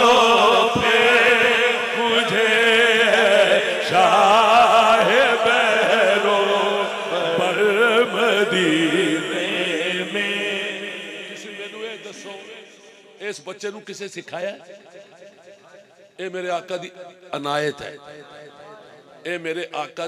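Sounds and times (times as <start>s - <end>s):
man singing through microphone: 0.0s - 12.8s.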